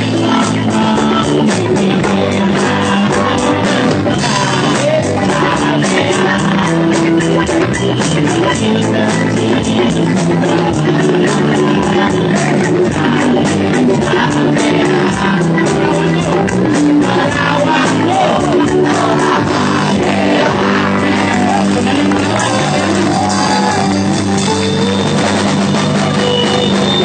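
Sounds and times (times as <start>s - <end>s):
person singing into microphone: 0.0s - 24.9s
band playing live: 0.0s - 27.0s
drum beat: 0.0s - 27.0s
crowd shouting: 11.7s - 27.0s.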